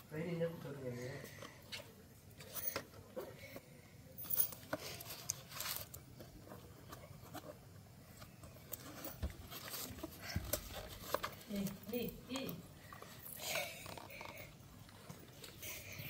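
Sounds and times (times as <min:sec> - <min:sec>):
cardboard box wrapping crinkling: 0:08.6 - 0:12.4.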